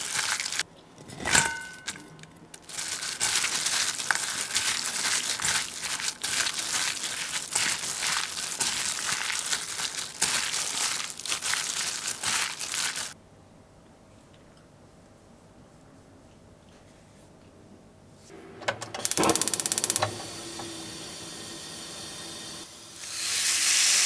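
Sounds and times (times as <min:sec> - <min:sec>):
plastic glove crinkling: 0:00.0 - 0:00.6, 0:01.9 - 0:13.2
wet marinade squishing: 0:00.0 - 0:00.6, 0:02.6 - 0:13.2.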